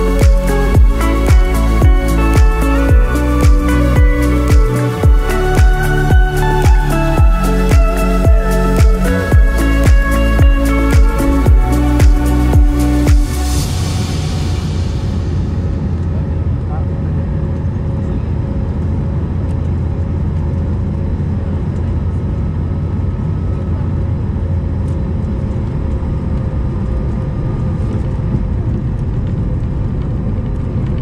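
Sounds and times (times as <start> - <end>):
jet engine whine: 0.0 - 31.0
aircraft cabin low rumble: 12.6 - 31.0.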